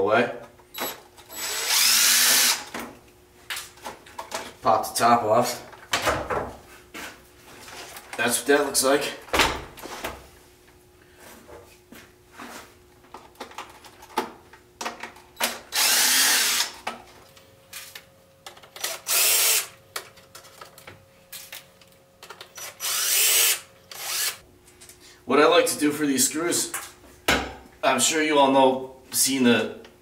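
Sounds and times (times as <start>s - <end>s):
impact driver running: 0.8s - 2.8s, 15.7s - 16.8s, 18.8s - 19.7s, 22.6s - 24.4s.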